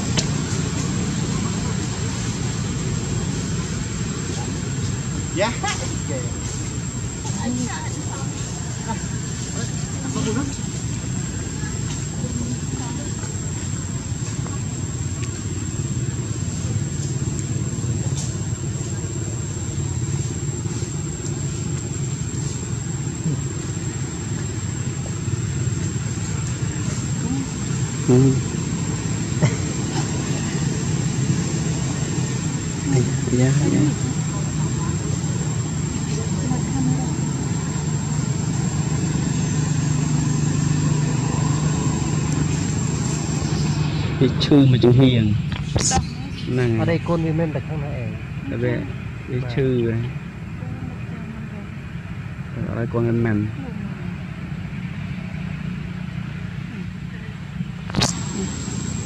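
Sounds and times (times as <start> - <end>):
high-pitched whine: 0.0 - 59.0
low engine drone: 0.0 - 59.0
thin high whine: 57.9 - 59.0.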